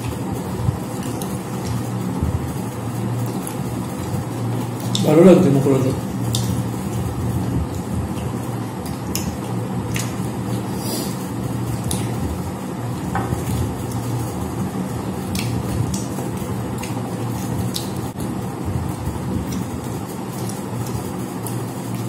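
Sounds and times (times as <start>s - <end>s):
fingers mixing food on plates: 0.0s - 22.0s
steady low hum: 0.0s - 22.0s
wet mouth sounds: 15.3s - 16.1s.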